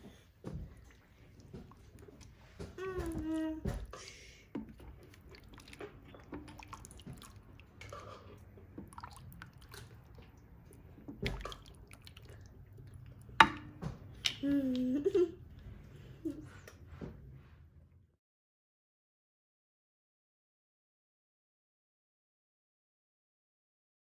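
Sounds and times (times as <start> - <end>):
liquid sloshing in a pot: 0.1 - 14.4.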